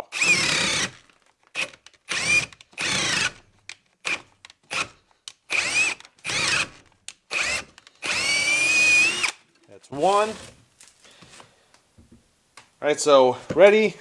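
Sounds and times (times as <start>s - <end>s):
cordless drill boring into wood: 0.0s - 10.6s.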